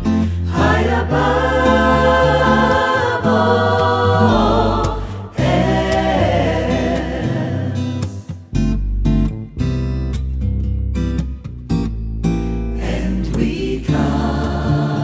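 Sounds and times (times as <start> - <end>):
choir singing held notes: 0.4 - 8.1, 12.8 - 15.0.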